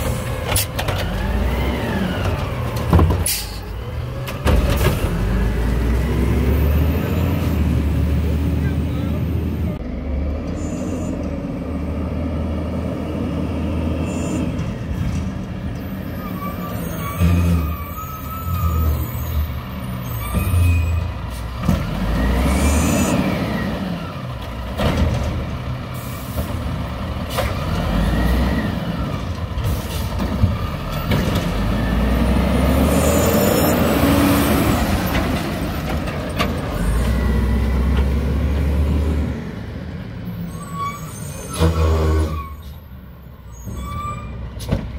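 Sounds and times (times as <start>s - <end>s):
diesel engine revving: 0.0s - 42.7s
air brakes hissing: 3.2s - 3.7s.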